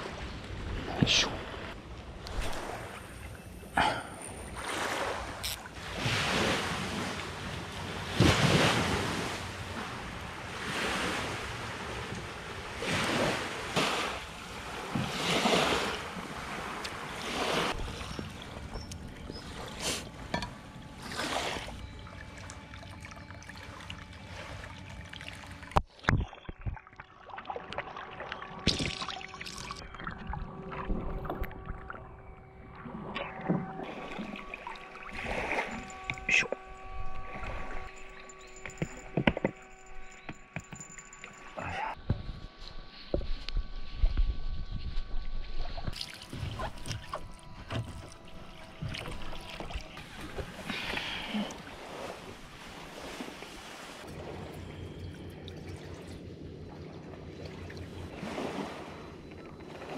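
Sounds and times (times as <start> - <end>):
faint steady hum: 28.0 - 59.9
wind on microphone: 41.5 - 50.8.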